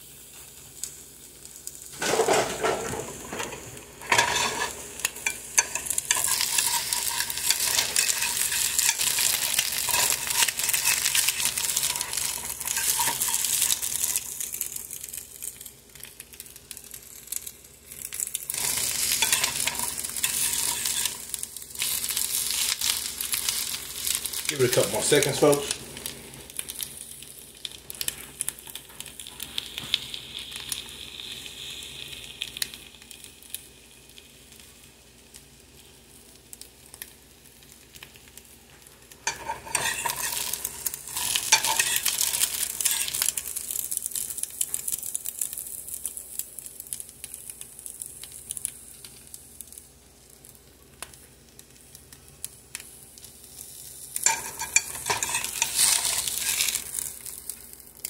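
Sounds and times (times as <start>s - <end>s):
food sizzling in a frying pan: 0.0s - 58.0s
stirring clatter: 39.3s - 40.4s, 54.2s - 56.8s.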